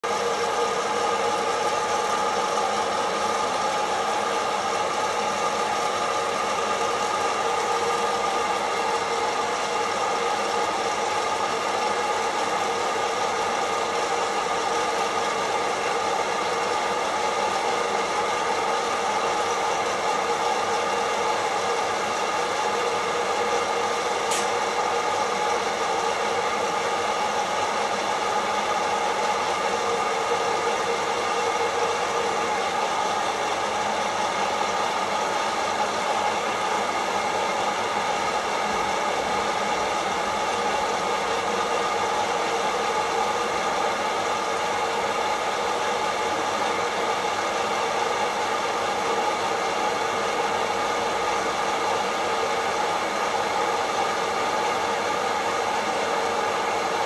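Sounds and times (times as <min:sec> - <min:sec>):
coffee roaster fan whirring: 0:00.0 - 0:57.0
sharp click: 0:24.3 - 0:24.5.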